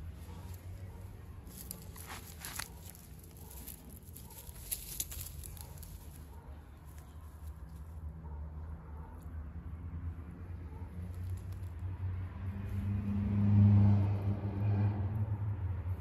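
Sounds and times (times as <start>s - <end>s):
soft rustling: 0.0s - 7.8s
low outdoor rumble: 0.0s - 16.0s.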